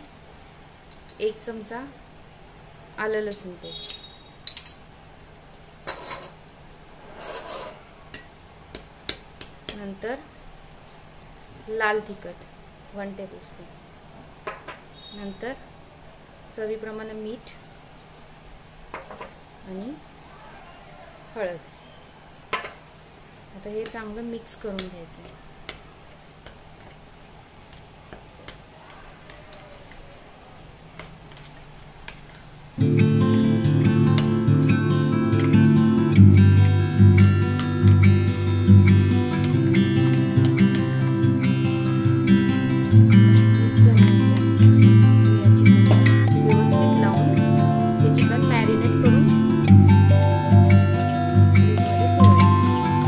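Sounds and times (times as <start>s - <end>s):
metal spoon scraping glass bowl: 7.0s - 7.8s.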